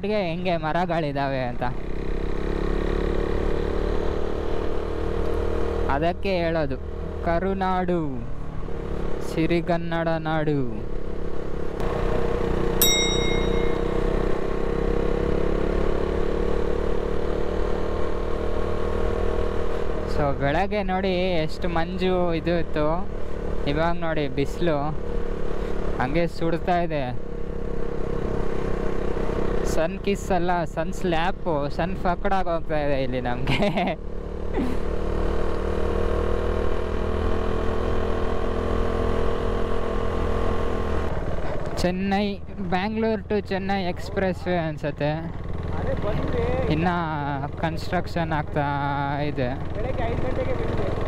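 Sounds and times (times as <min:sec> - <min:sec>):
road noise: 0:00.0 - 0:51.0
motorcycle engine running: 0:01.4 - 0:09.6, 0:10.2 - 0:51.0
high clear beep: 0:12.8 - 0:14.1.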